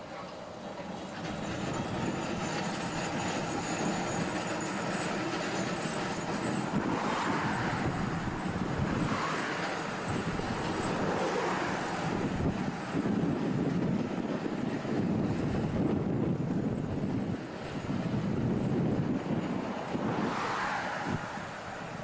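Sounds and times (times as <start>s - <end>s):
road traffic passing: 0.0s - 22.0s
streetcar running on rails: 0.0s - 22.0s.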